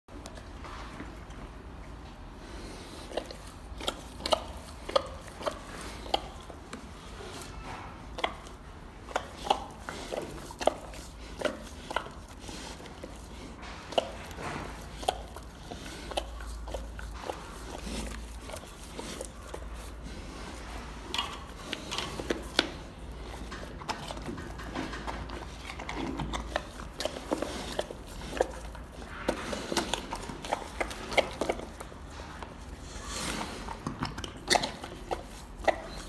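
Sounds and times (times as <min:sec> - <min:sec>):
bear licking and smacking: 0:00.1 - 0:36.0.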